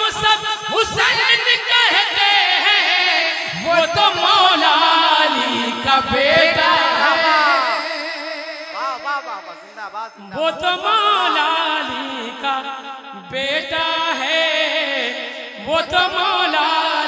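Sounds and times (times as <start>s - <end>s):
man singing into microphone: 0.0s - 17.0s.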